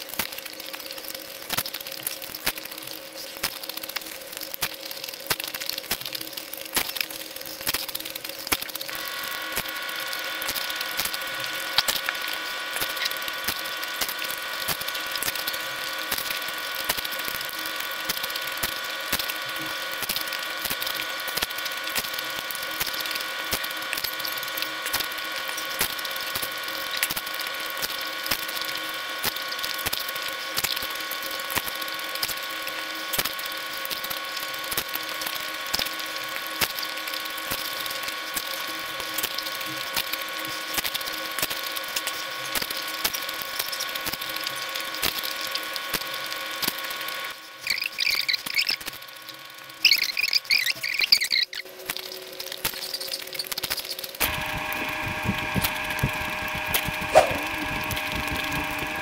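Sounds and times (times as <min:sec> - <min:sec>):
steady multi-tone hum: 0:00.0 - 0:59.0
wet chewing and slurping: 0:54.3 - 0:59.0.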